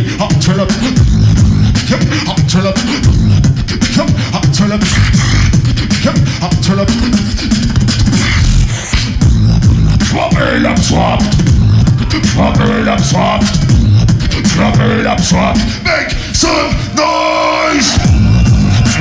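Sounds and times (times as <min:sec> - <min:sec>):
heavy low bass: 0:00.0 - 0:19.0
person beatboxing into microphone: 0:00.0 - 0:19.0.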